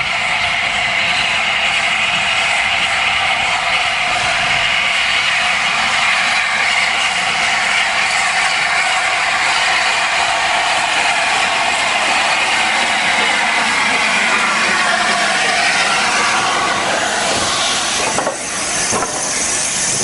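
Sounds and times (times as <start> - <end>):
steam hissing from locomotive: 0.0 - 20.0.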